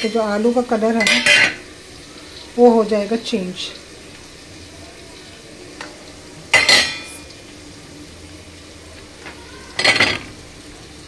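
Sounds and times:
steel pan clanking on grate: 1.0 - 1.6, 6.5 - 7.3, 9.8 - 10.3
potato wedges clattering into pan: 5.8 - 7.4, 9.2 - 10.4.

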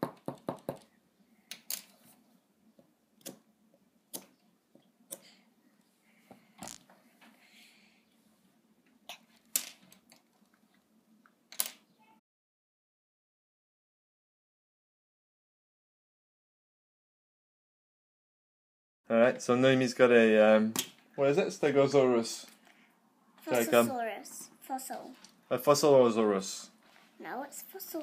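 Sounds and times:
clay egg knocking on tabletop: 0.0 - 0.9.

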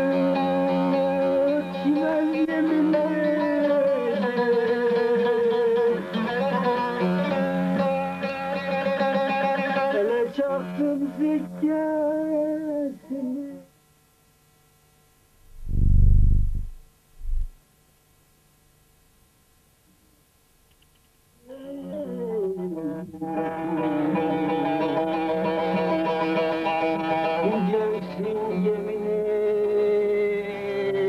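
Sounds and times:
steady drone: 15.4 - 17.6.

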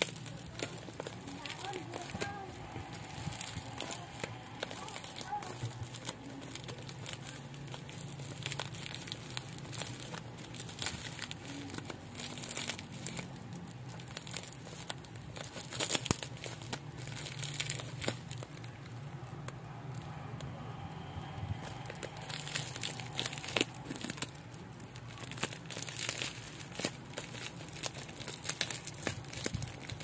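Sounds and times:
bubble wrap crinkling: 0.0 - 30.0.

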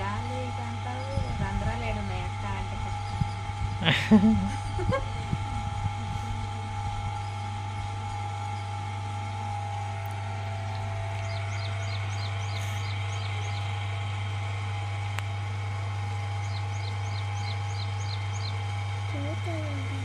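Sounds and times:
electric potter's wheel humming: 0.0 - 20.0
small bird chirping: 3.0 - 3.8, 10.0 - 13.8, 16.4 - 18.6.

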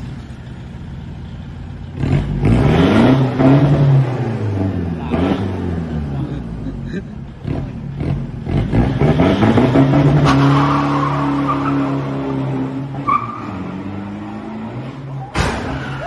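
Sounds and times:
truck engine revving: 1.7 - 16.0
sharp thump: 15.3 - 16.0.

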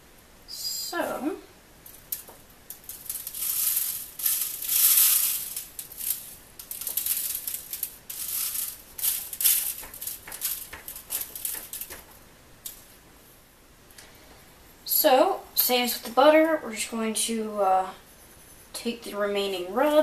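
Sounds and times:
spice rub rustling on foil pan: 1.8 - 13.0.

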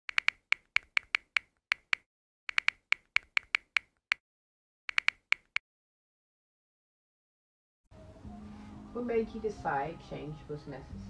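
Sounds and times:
keyboard key clicks: 0.1 - 4.0, 4.9 - 5.6.

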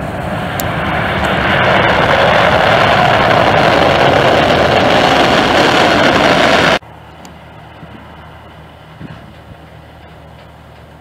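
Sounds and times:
jet engines roaring: 0.0 - 11.0
quiet jet engine noise: 0.0 - 11.0.

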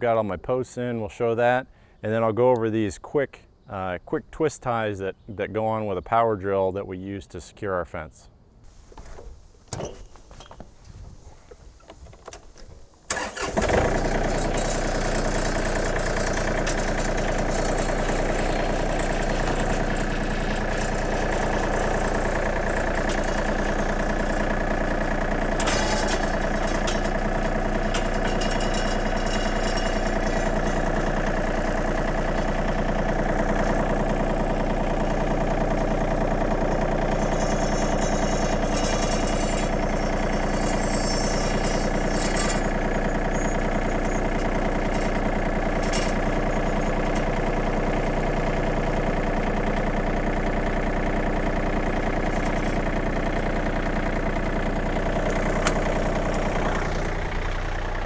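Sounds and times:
tractor diesel engine running: 8.7 - 58.0.

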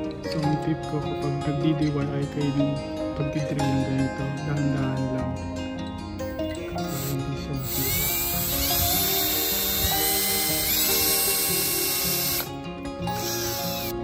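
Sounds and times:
background music: 0.0 - 14.0
cordless drill whining: 6.3 - 14.0.

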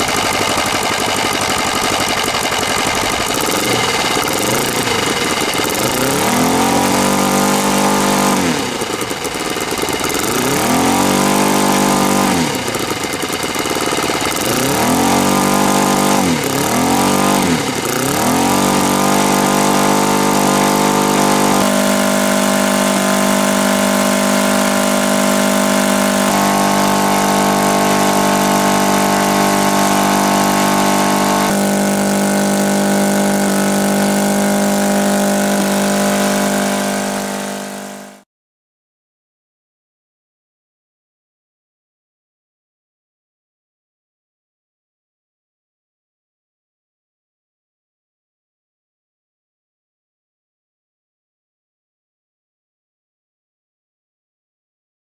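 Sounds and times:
model aircraft engine revving: 0.0 - 38.2.

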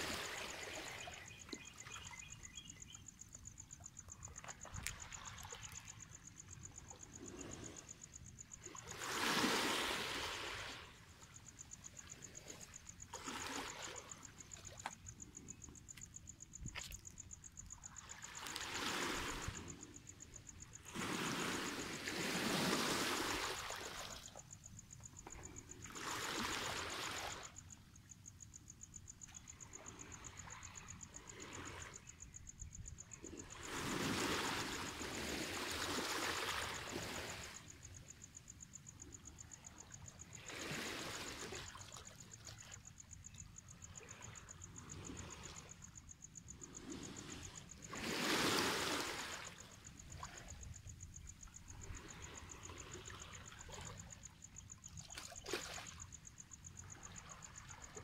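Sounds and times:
insect trill: 0.0 - 58.0
waves washing over stony beach: 20.9 - 24.0, 46.8 - 49.7.

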